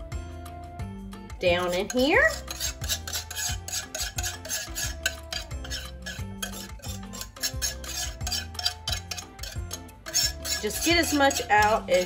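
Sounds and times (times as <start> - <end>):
background music with a beat: 0.0 - 1.5
whisk scraping a mixing bowl: 1.6 - 12.0.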